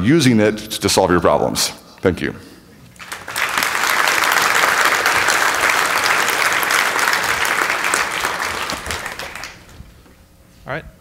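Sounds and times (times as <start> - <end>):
audience applauding: 3.0 - 9.9.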